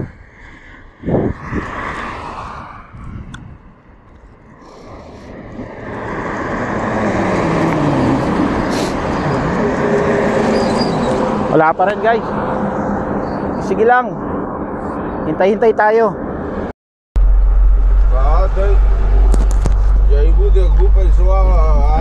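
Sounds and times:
car passing by: 0:00.4 - 0:15.3.

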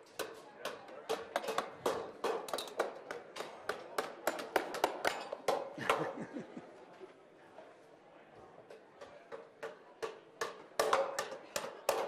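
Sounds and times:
hammers driving nails into metal: 0:01.1 - 0:05.7.

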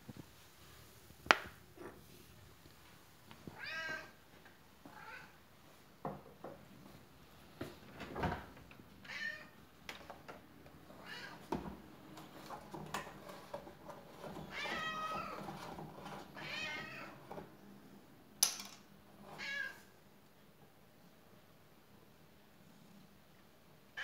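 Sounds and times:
cat meowing: 0:03.5 - 0:04.2.

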